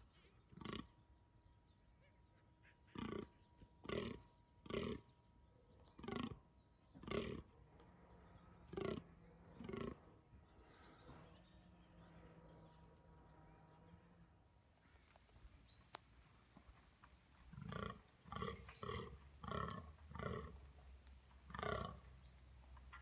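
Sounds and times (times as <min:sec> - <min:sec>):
deer grunting: 0:02.9 - 0:05.1, 0:06.0 - 0:06.4, 0:07.0 - 0:07.6, 0:08.6 - 0:11.2, 0:17.4 - 0:23.0.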